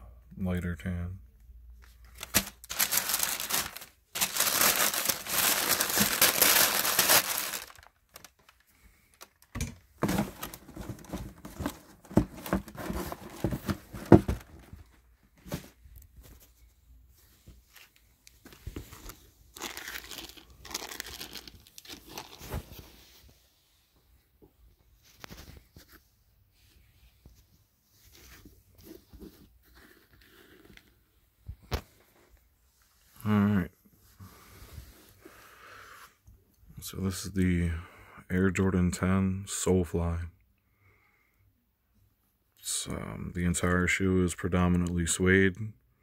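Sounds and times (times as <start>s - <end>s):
tissue paper crinkling: 1.8s - 14.9s, 17.7s - 23.3s.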